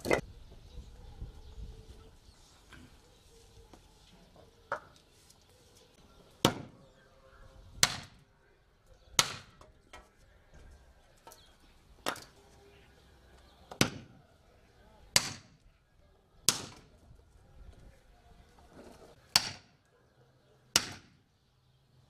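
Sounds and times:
axe chopping firewood: 0:06.4 - 0:06.8, 0:07.8 - 0:08.2, 0:09.1 - 0:09.8, 0:13.7 - 0:14.2, 0:15.1 - 0:15.6, 0:16.5 - 0:16.9, 0:19.3 - 0:19.8, 0:20.7 - 0:21.2.

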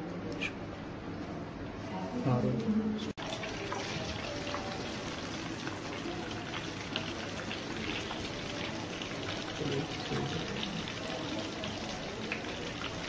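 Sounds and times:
chicken sizzling in hot oil: 0:03.2 - 0:13.0.

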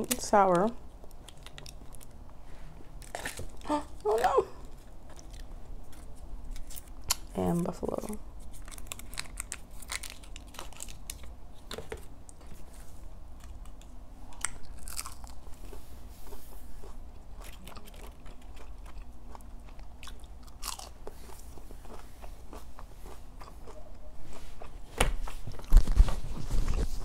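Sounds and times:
crunchy chewing: 0:04.7 - 0:07.3, 0:08.4 - 0:11.7, 0:13.3 - 0:26.0.

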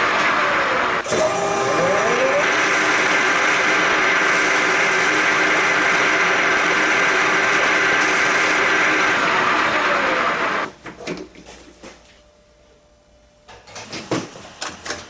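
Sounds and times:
metal lathe whining: 0:00.0 - 0:10.7.

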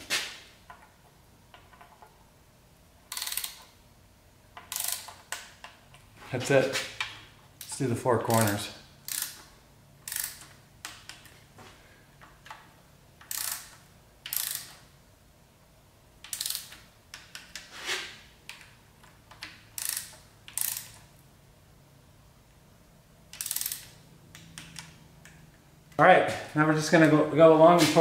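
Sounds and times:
hand ratchet clicking: 0:03.1 - 0:03.8, 0:04.6 - 0:05.8, 0:07.0 - 0:11.3, 0:13.2 - 0:14.8, 0:16.2 - 0:17.7, 0:18.5 - 0:21.1, 0:23.3 - 0:25.4.

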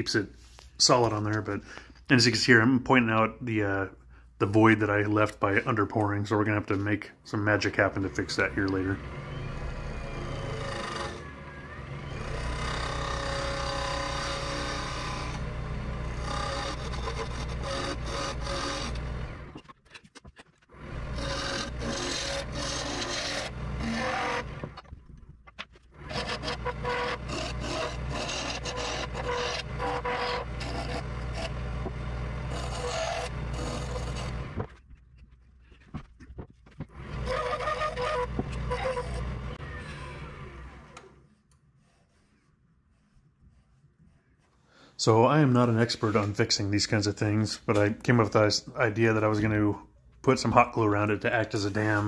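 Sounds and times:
turning tool scraping wood: 0:07.6 - 0:40.0, 0:40.7 - 0:44.5, 0:50.3 - 0:52.0
lathe motor humming: 0:08.0 - 0:19.6, 0:20.7 - 0:24.8, 0:25.9 - 0:34.7, 0:36.9 - 0:41.2.

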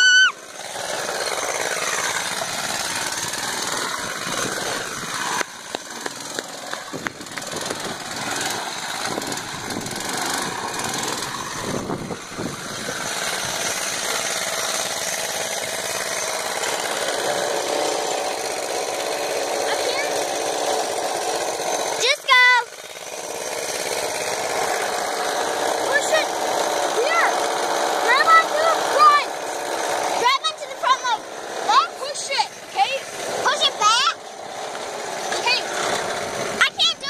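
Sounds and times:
go-kart engine running: 0:00.0 - 0:37.0
sharp engine pops: 0:05.4 - 0:07.9.

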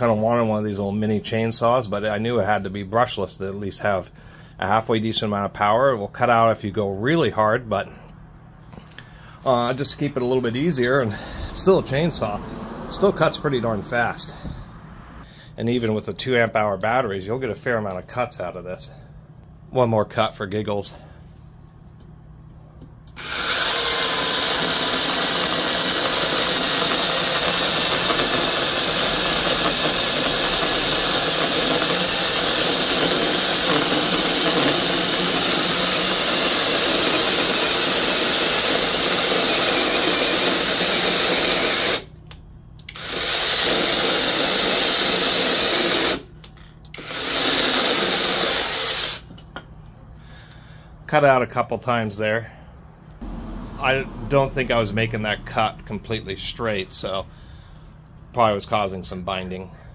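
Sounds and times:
chainsaw cutting log: 0:23.2 - 0:42.0.

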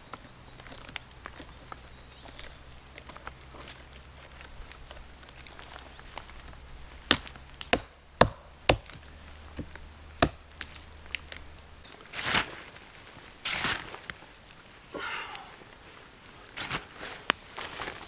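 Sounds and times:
woody chops on tree trunk: 0:07.1 - 0:10.7.

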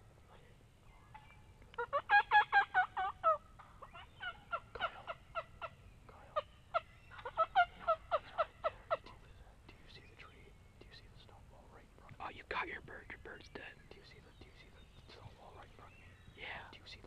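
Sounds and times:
turkey calling: 0:01.0 - 0:11.3.

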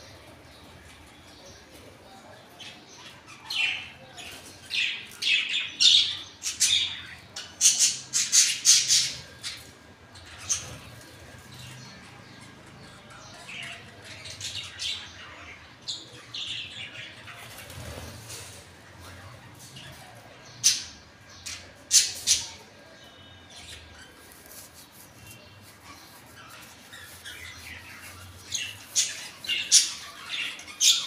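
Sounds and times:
parrots calling and squawking: 0:25.2 - 0:31.0.

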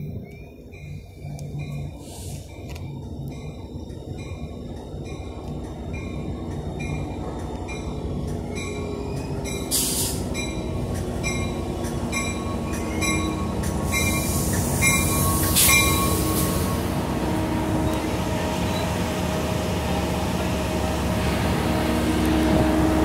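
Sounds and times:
train bell ringing: 0:00.0 - 0:17.0, 0:17.7 - 0:19.1
diesel locomotive engine rumble: 0:00.0 - 0:23.0
short bursts of hiss: 0:09.7 - 0:10.3.

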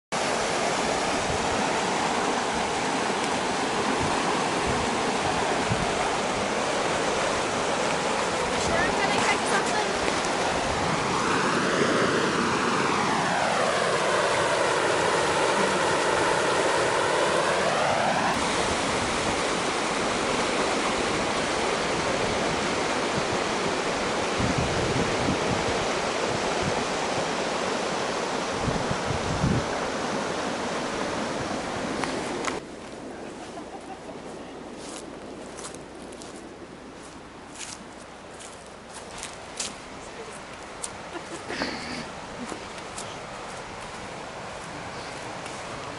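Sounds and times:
water rushing through spillway: 0:00.2 - 0:32.6.

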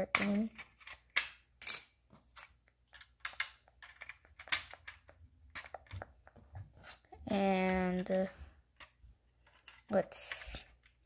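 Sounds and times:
plastic bricks clicking: 0:00.1 - 0:06.4.

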